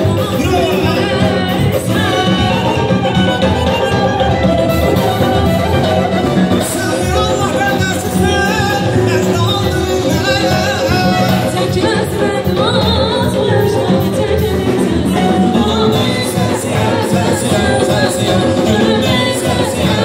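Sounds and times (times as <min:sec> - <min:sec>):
man singing: 0:00.0 - 0:03.0, 0:06.0 - 0:11.9, 0:14.3 - 0:20.0
woman singing: 0:00.0 - 0:04.2, 0:05.0 - 0:20.0
band music: 0:00.0 - 0:20.0.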